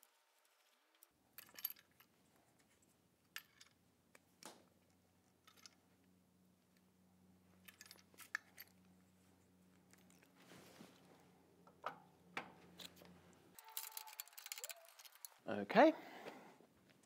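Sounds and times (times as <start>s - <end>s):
faint low hum: 0.1s - 17.0s
telescope mount clicks and clacks: 11.7s - 15.4s.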